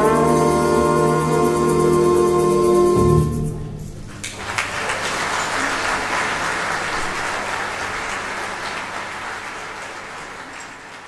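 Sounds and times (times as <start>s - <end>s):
audience applauding: 4.1s - 11.0s.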